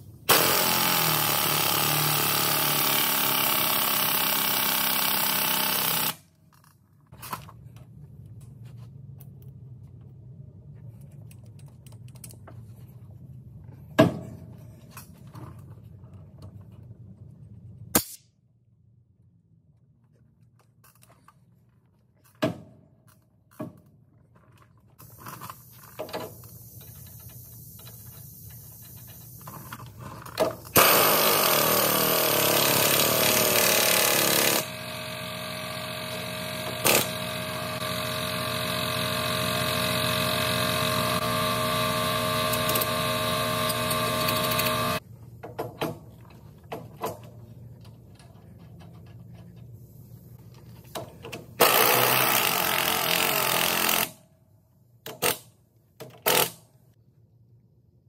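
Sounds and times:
pneumatic impact wrench hammering: 0.2s - 6.2s, 30.4s - 45.0s, 51.3s - 54.2s, 55.0s - 56.7s.

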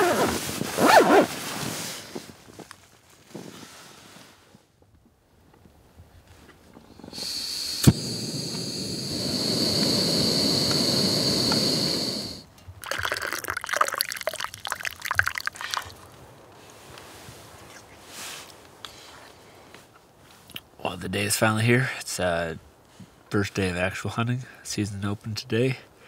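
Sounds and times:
stove burning with hiss: 6.7s - 13.1s
hot water pouring and splashing: 7.2s - 16.0s.

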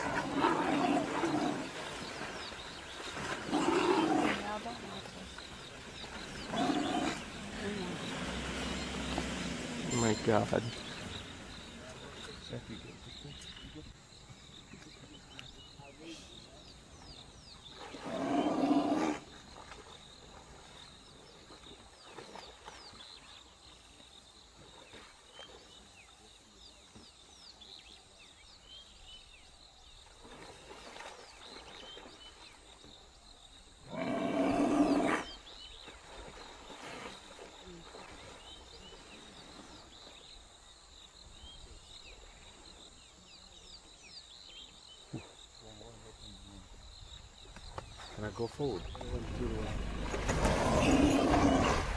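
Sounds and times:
large animal roaring: 33.9s - 35.3s, 49.2s - 51.9s.

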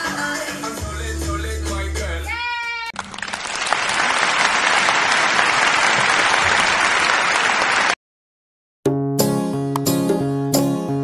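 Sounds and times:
applause: 3.0s - 8.0s.

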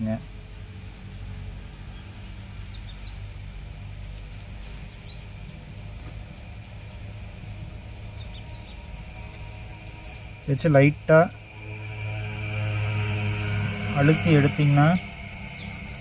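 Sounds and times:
steady low hum: 0.0s - 16.0s
small birds chirping: 0.8s - 16.0s.

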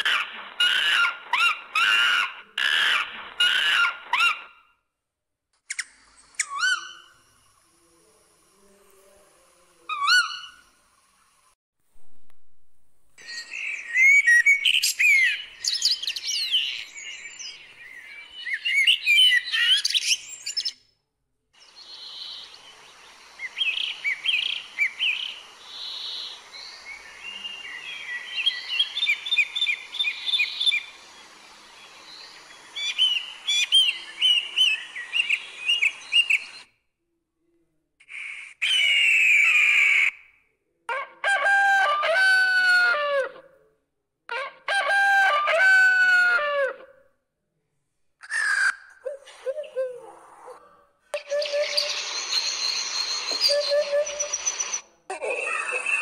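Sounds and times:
faint steady hiss: 5.9s - 14.1s, 21.6s - 36.7s, 51.2s - 54.8s
songbirds chirping and warbling: 13.2s - 20.8s, 21.6s - 36.7s, 48.3s - 56.0s
rooster crowing: 40.9s - 43.4s, 44.4s - 46.9s.

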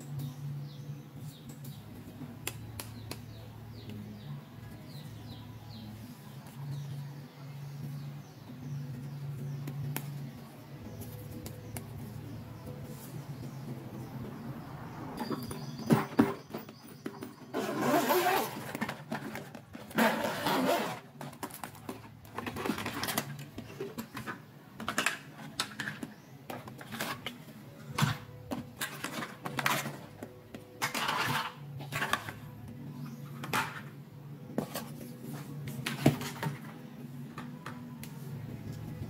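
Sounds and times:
zipper opening: 17.5s - 21.4s.

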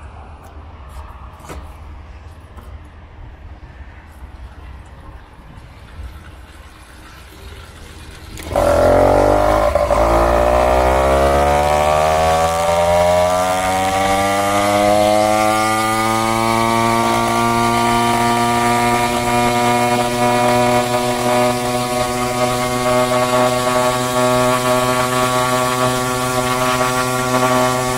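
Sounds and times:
two-stroke engine accelerating: 7.6s - 27.9s.

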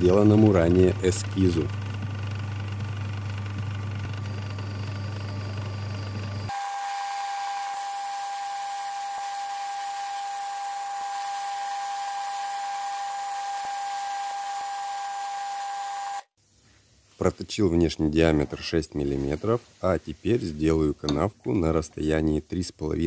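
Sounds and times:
lathe machine hum: 0.0s - 16.2s.

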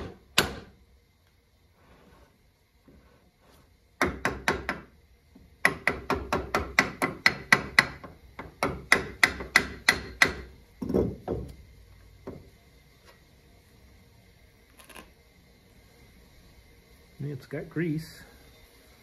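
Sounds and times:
hammer knocking on wooden bench: 4.0s - 4.9s, 5.6s - 11.6s.

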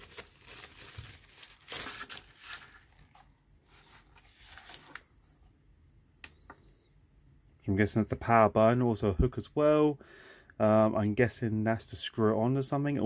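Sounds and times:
plastic bag rustling: 0.0s - 5.1s.

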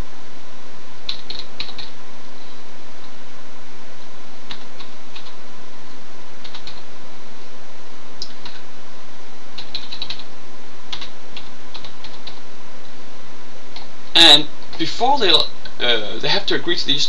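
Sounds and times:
steady background hiss: 0.0s - 17.0s
computer keyboard typing: 1.1s - 2.0s, 4.5s - 5.4s, 6.4s - 6.8s, 8.2s - 8.6s, 9.6s - 10.3s, 10.9s - 12.4s.

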